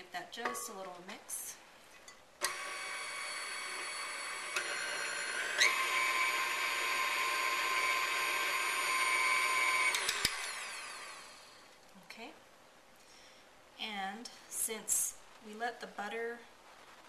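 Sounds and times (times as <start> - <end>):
stand mixer motor whine: 2.4 - 11.5.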